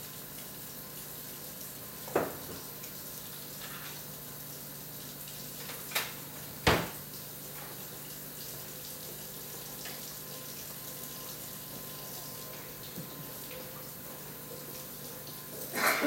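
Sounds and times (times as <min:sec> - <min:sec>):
knocks on a kitchen countertop: 0:02.1 - 0:02.6, 0:06.6 - 0:07.0.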